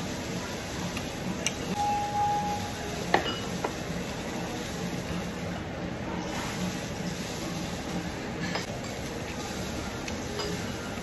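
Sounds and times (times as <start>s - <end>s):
restaurant background hiss and hum: 0.0s - 11.0s
steady tone: 1.8s - 3.0s.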